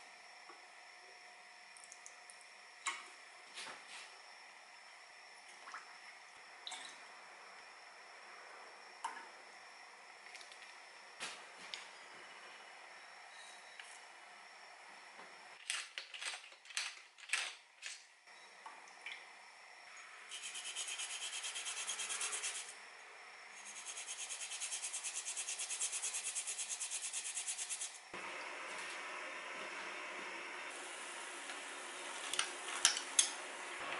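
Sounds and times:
ginger grated on metal grater: 20.3 - 22.7, 23.6 - 28.0
steady hiss: 23.6 - 33.9.

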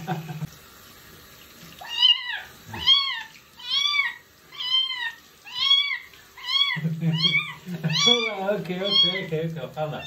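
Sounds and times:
kitten meowing: 1.8 - 9.3.

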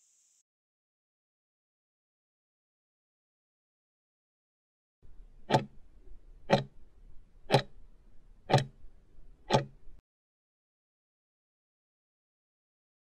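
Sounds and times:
clock-like ticks: 5.4 - 5.8, 6.4 - 6.8, 7.5 - 7.8, 8.5 - 8.8, 9.4 - 10.0.

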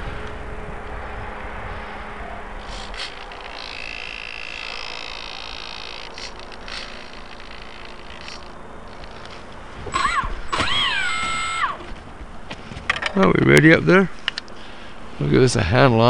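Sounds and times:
steady rushing noise: 0.0 - 11.0
high whine: 0.0 - 12.3.

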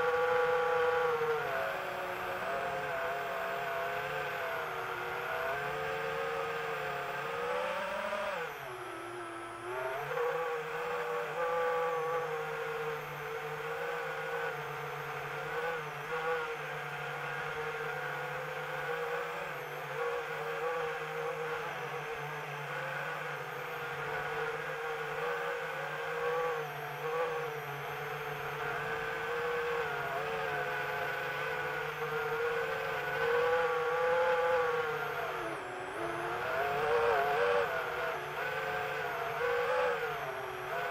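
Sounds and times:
drone propellers whining: 28.3 - 40.9.

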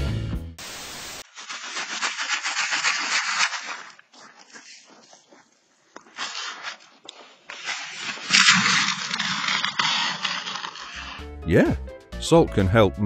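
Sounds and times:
person sliding on ice: 1.2 - 11.2.

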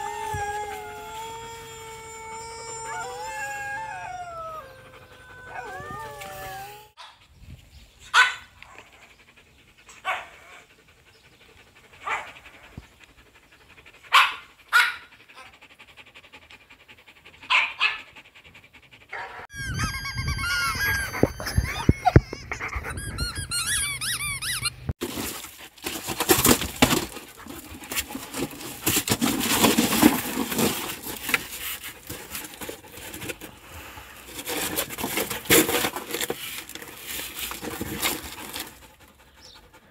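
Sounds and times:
dog barking: 8.1 - 8.8, 10.0 - 10.6, 12.0 - 12.4, 14.1 - 15.5, 17.5 - 18.0, 19.1 - 19.5
high squeaking: 19.5 - 25.0
dog tearing cardboard box: 25.0 - 33.5, 34.3 - 38.8.

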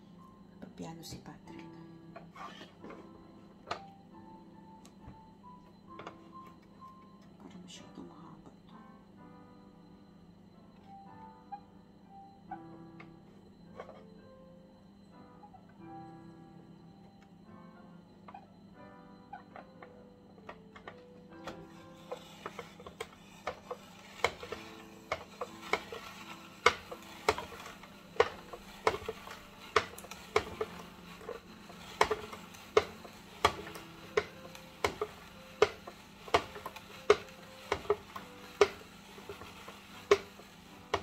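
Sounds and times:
faint piano playing: 0.0 - 41.0
spiralizer crank clicking: 20.5 - 41.0.

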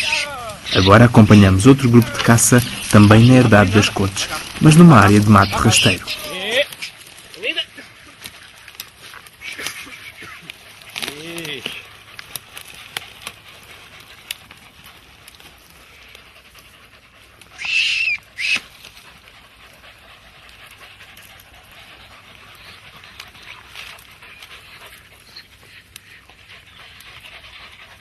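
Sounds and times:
dog crying out: 0.0 - 1.0, 4.2 - 7.8, 17.5 - 18.8
dogs panting: 0.0 - 28.0.

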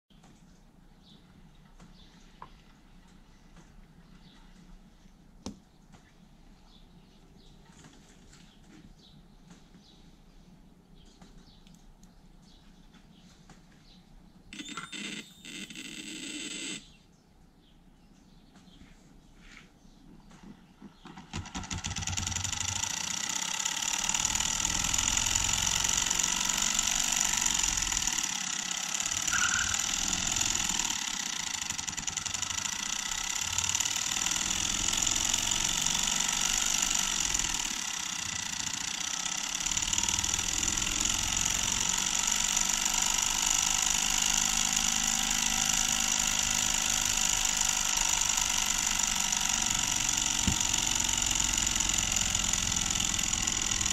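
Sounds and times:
electric motor humming and whining: 14.6 - 17.0, 21.9 - 53.9.

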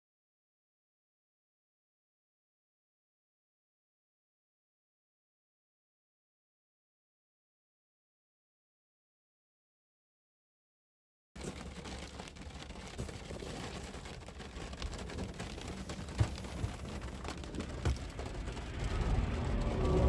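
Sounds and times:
road and engine noise in car: 11.4 - 20.0.

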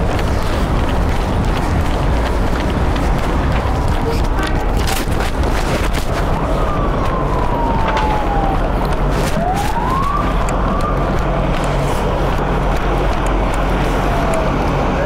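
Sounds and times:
street and engine noise: 0.0 - 15.0
siren wailing: 6.3 - 11.5.

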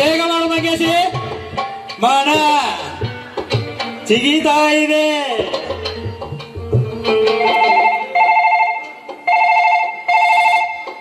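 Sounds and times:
low drum beats: 0.0 - 7.7
telephone ringing: 7.3 - 11.0.

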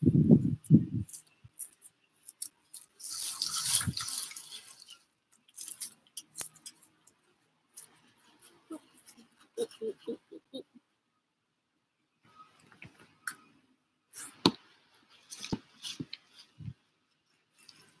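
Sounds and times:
rustle rubbing on microphone: 0.0 - 5.9.

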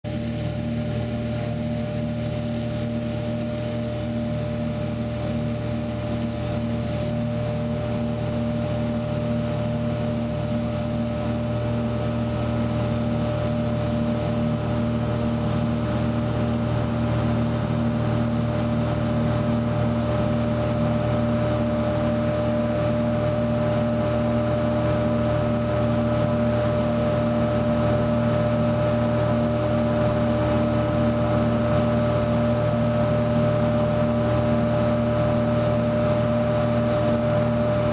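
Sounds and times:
propeller aircraft engine droning: 0.1 - 37.9.

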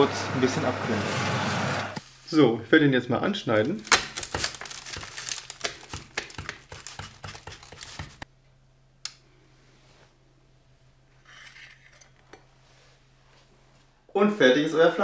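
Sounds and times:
knife crunching through crisp crust: 3.8 - 8.2.

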